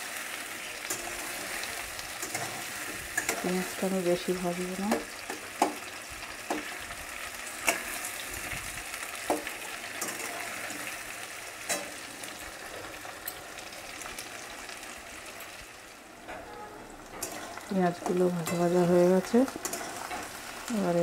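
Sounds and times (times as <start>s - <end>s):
vegetables sizzling in oil: 0.0s - 21.0s
metal spatula scraping wok: 0.6s - 5.7s, 6.4s - 13.4s, 16.3s - 21.0s.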